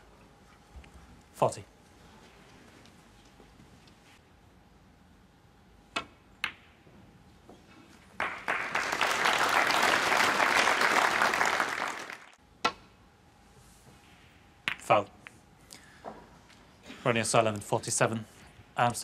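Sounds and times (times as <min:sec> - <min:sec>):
audience applauding: 0:08.2 - 0:12.4.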